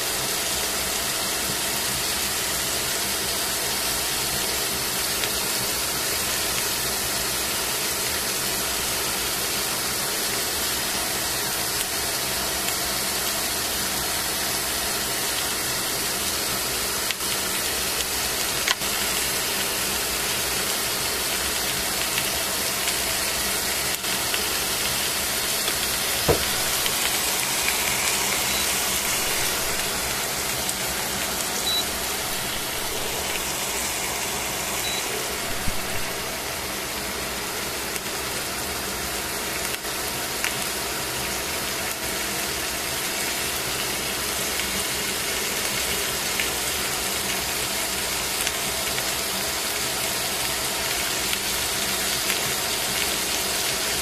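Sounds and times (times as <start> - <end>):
chicken sizzling in pan: 0.0 - 54.0
small pops of frying: 17.0 - 36.3, 39.5 - 41.3, 50.5 - 54.0.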